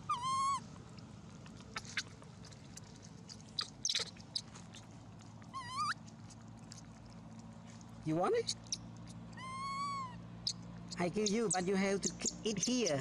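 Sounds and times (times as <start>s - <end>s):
baby monkey whimpering calls: 0.0s - 0.7s, 3.6s - 4.4s, 5.5s - 6.0s, 8.4s - 11.6s
monkey rasping squeals: 0.0s - 0.7s, 3.6s - 4.5s, 5.5s - 6.0s, 8.4s - 11.6s.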